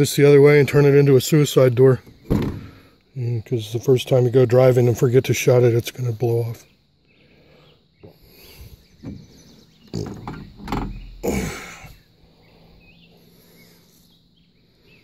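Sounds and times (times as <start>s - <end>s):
hatch knocking and scraping: 9.0s - 11.3s.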